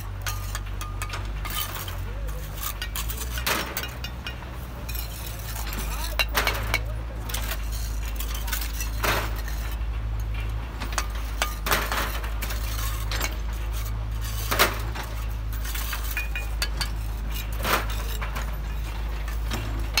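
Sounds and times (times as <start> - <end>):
trowels scraping on bricks: 0.0 - 20.0.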